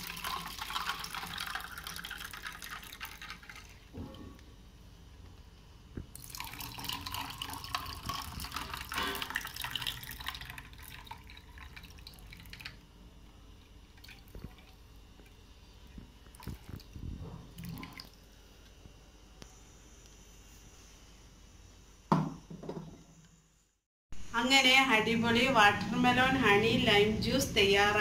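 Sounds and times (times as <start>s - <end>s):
juice pouring over ice: 0.0s - 3.9s, 6.1s - 12.8s.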